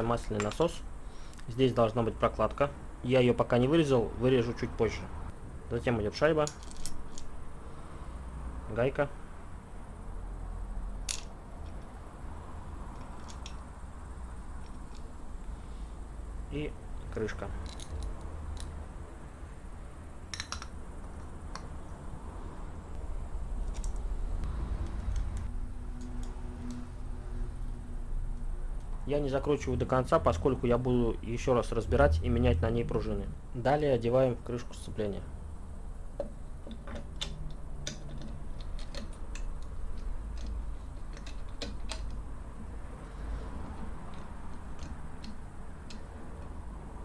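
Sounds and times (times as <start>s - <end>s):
steady low hum: 0.0s - 47.0s
metal clicks and taps: 20.3s - 21.7s, 36.2s - 42.2s, 43.8s - 46.6s
light metallic clicks and taps: 43.7s - 46.6s.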